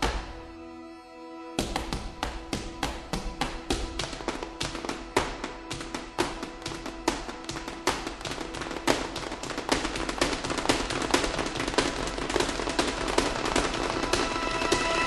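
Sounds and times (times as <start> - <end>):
faint music: 0.0 - 15.0
clatter of percussive strikes: 9.6 - 15.0.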